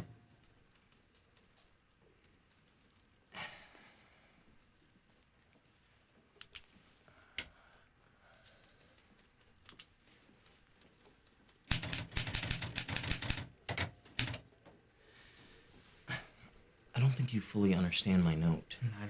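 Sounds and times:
typewriter keystrokes: 0:11.7 - 0:14.4.

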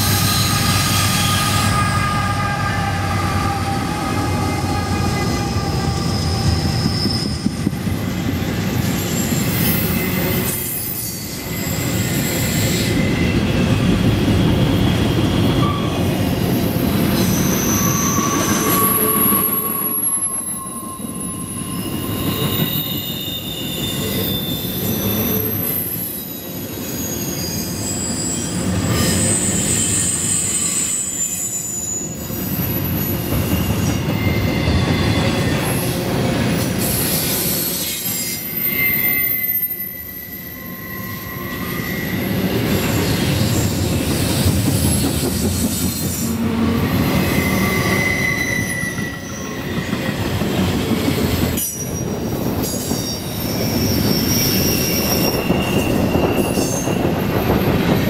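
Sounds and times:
high squealing tones: 0:00.0 - 0:07.8, 0:17.1 - 0:35.9, 0:36.8 - 0:43.8, 0:45.8 - 0:50.2, 0:51.6 - 0:58.0
freight train wheels rumbling: 0:00.0 - 0:58.0.

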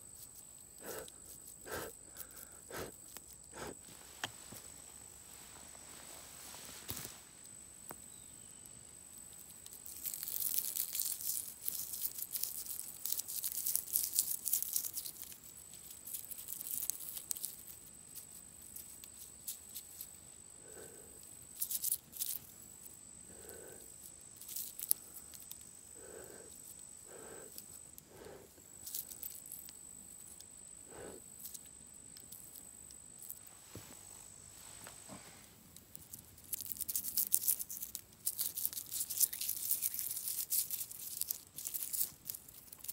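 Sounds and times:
dry wheat crackling and rustling: 0:03.9 - 0:08.0, 0:09.3 - 0:20.0, 0:33.3 - 0:42.9.

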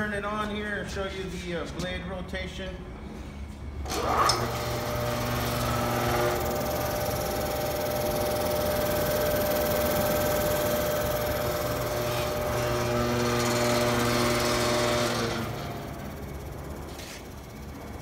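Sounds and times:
concrete grinder motor humming: 0:03.9 - 0:17.2.

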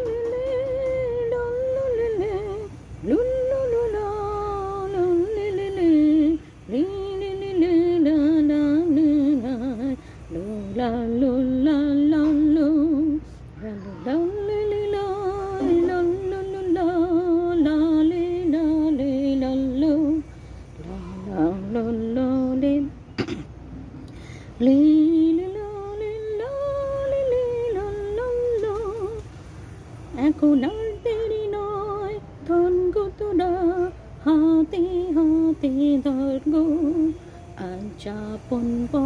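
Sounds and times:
woman singing unaccompanied: 0:00.0 - 0:23.1, 0:24.6 - 0:29.4, 0:30.1 - 0:39.0.

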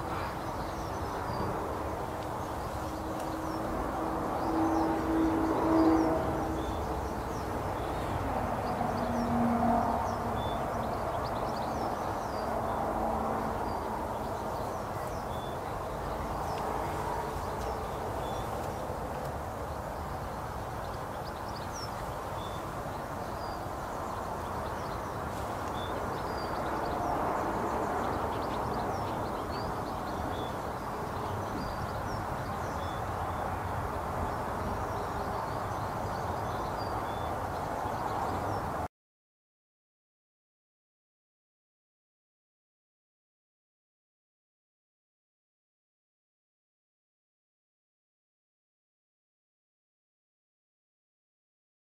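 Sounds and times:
outdoor background noise: 0:00.0 - 0:38.9
small birds chirping: 0:13.5 - 0:38.8.

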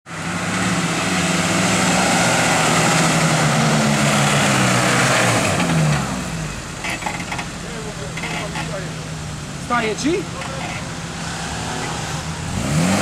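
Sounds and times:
engine running at high revs: 0:00.1 - 0:06.6, 0:11.1 - 0:13.0.

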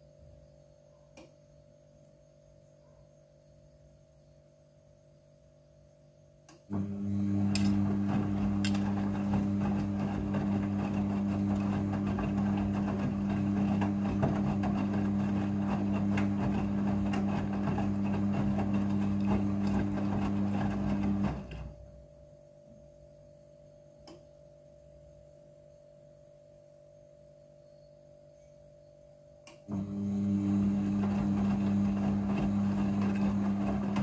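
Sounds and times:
faint steady hum: 0:00.0 - 0:13.0, 0:15.3 - 0:33.9
washing machine motor hum: 0:06.7 - 0:22.3, 0:29.6 - 0:34.0.

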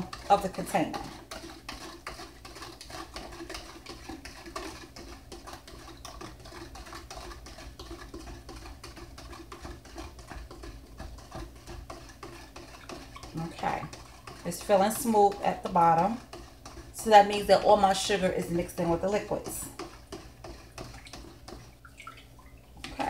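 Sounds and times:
spoon stirring in a pitcher: 0:00.0 - 0:23.0.

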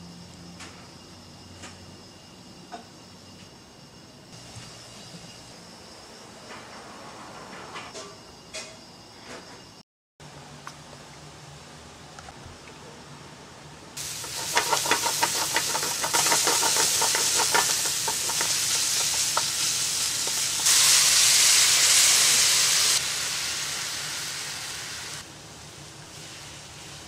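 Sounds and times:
onions sizzling in hot oil: 0:14.0 - 0:27.0.

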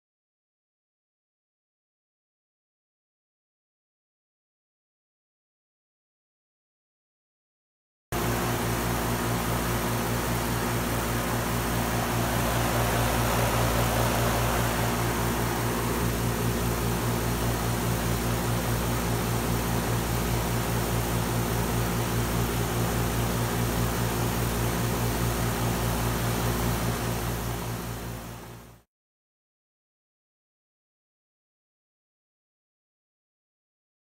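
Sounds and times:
fan rushing: 0:08.2 - 0:20.1
compressor hum: 0:08.2 - 0:20.8.

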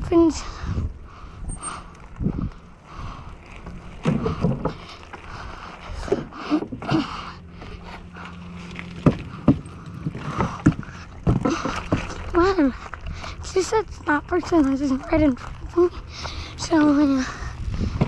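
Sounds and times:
wind rushing over microphone: 0:00.0 - 0:04.7, 0:17.3 - 0:18.0
bike tyres rolling and rattling: 0:00.7 - 0:18.0.

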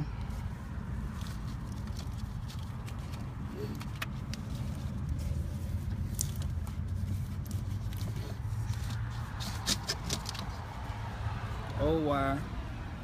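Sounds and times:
low background rumble: 0:00.0 - 0:11.8
light clicks and rustles: 0:01.1 - 0:10.7.

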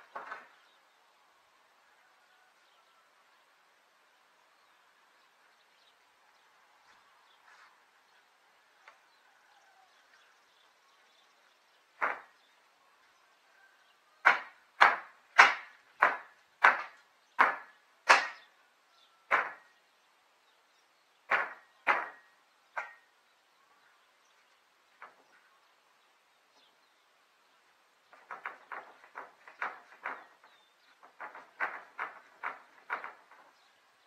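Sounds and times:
hammer striking wood: 0:12.0 - 0:12.4, 0:14.2 - 0:18.5, 0:19.3 - 0:19.7, 0:21.3 - 0:23.0, 0:28.2 - 0:33.4.

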